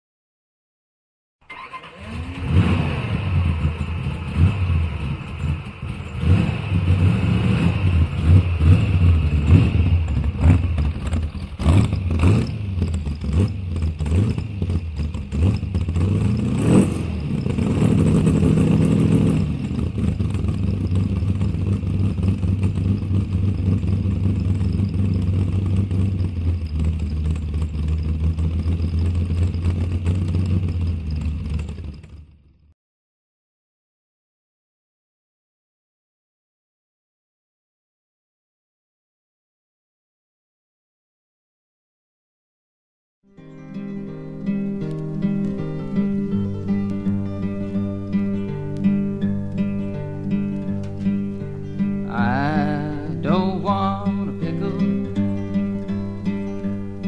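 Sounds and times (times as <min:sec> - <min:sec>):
engine revving: 0:01.4 - 0:32.7, 0:43.5 - 0:57.0
motorcycle engines droning: 0:01.5 - 0:32.7, 0:43.4 - 0:57.0.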